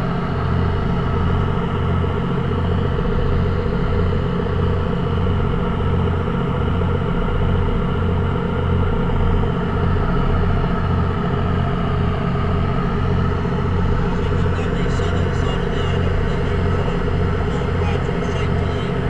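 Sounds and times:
boat engine droning: 0.0 - 19.0.

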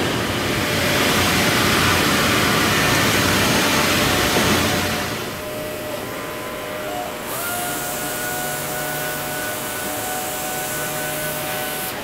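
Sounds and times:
workshop machinery rushing: 0.0 - 12.0.

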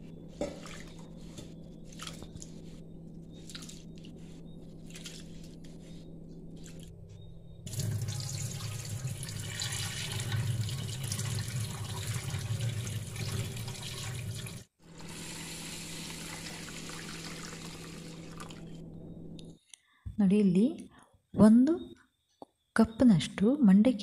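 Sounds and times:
tap water running into bowl: 7.7 - 14.6, 16.0 - 18.6
water splashing into sink: 7.7 - 14.6.

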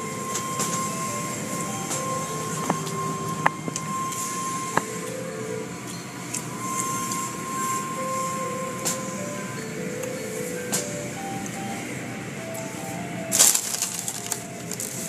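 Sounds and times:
car wash machinery running: 0.0 - 15.0
thin steady tone: 0.0 - 15.0.

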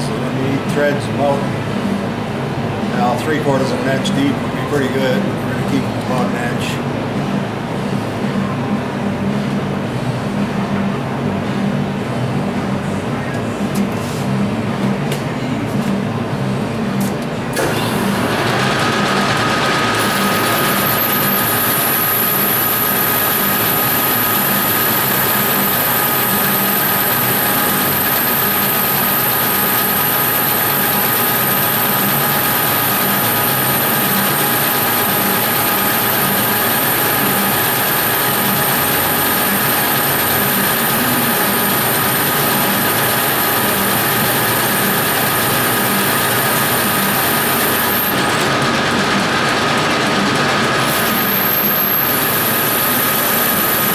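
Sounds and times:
metal lathe motor hum: 17.6 - 53.9
thin high whine: 20.0 - 48.5.

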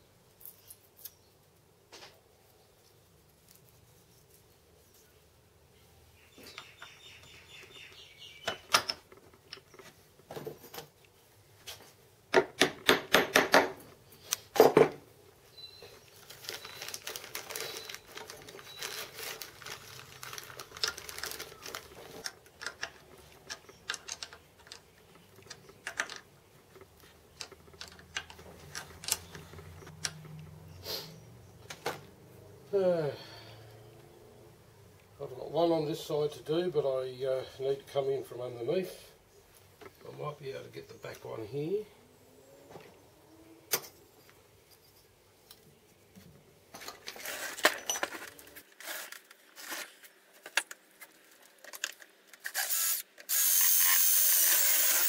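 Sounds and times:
rustling: 0.3 - 8.0, 15.4 - 29.9, 43.9 - 53.0.

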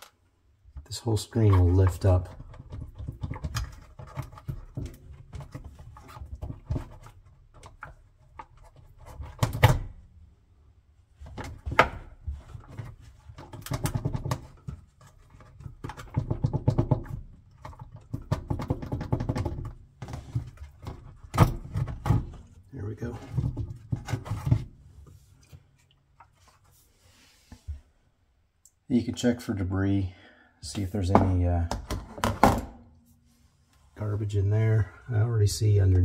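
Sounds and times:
plastic filter clicking and scraping: 0.8 - 9.7, 11.2 - 26.8.

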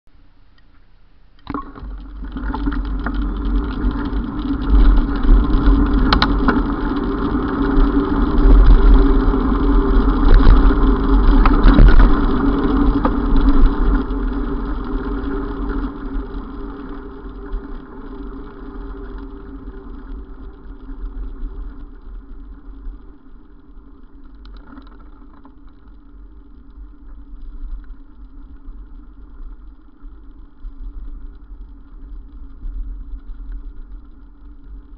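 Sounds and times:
steady hum: 0.1 - 34.9
road rumble: 1.4 - 34.9
wind buffeting: 1.8 - 22.3.

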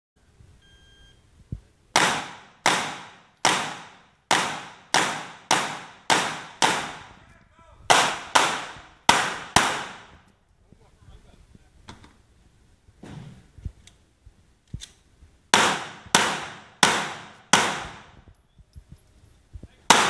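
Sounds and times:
shot timer beep: 0.6 - 1.2
pistol shots echoing: 2.0 - 7.2, 7.9 - 10.2, 15.5 - 18.2.

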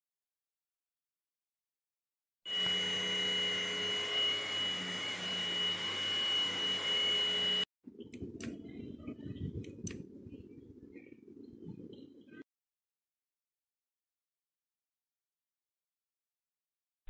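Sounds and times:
vacuum motor whining: 2.5 - 7.7
sharp clicks: 9.6 - 10.0.

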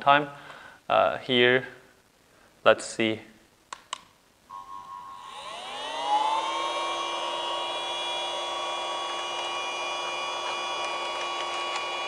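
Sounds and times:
handheld vacuum cleaner motor whine: 4.5 - 12.0.

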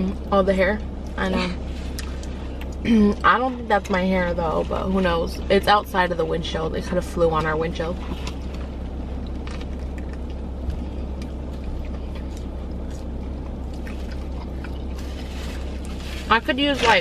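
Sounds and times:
car cabin hum: 0.0 - 17.0
faint chewing: 1.0 - 3.2, 7.4 - 17.0.

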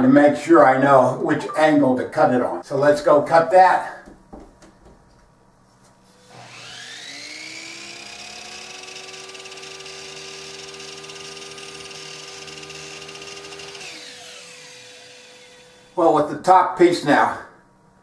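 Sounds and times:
miter saw motor whining: 6.2 - 16.0.

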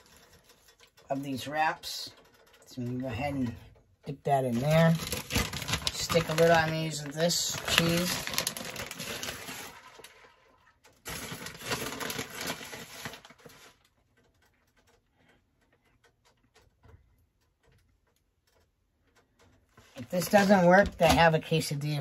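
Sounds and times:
plastic bag crinkling: 0.0 - 3.1, 4.3 - 14.5.

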